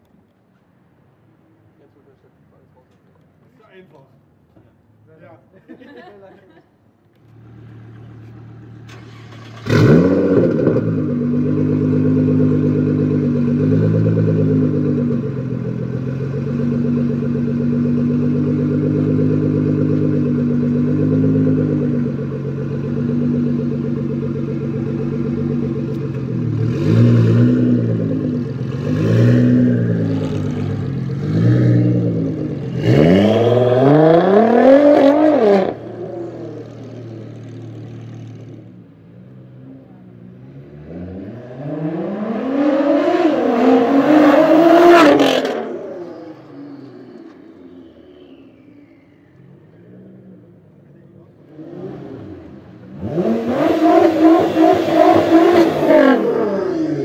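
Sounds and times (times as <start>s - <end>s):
car engine starting and idling: 7.1s - 40.6s
engine revving: 7.4s - 38.7s, 40.4s - 48.2s, 51.4s - 57.0s.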